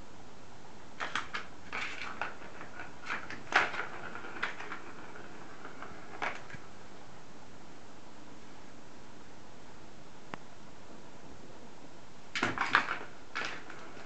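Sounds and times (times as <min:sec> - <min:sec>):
plastic toy clicks and knocks: 0:01.0 - 0:04.9
ball rattling in plastic track: 0:01.0 - 0:06.7, 0:12.4 - 0:14.0.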